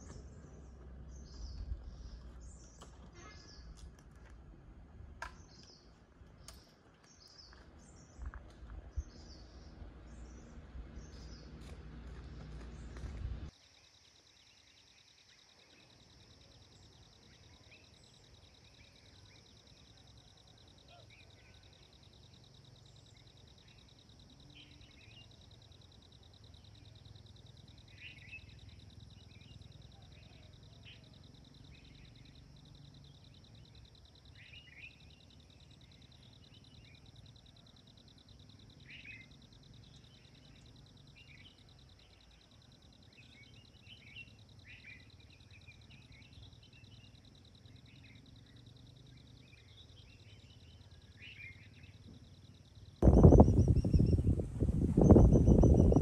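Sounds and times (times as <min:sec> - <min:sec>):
small birds chirping: 0:00.0 - 0:04.3, 0:05.2 - 0:56.0
pulsing insect trill: 0:13.6 - 0:56.0
faint low rumble: 0:35.4 - 0:56.0.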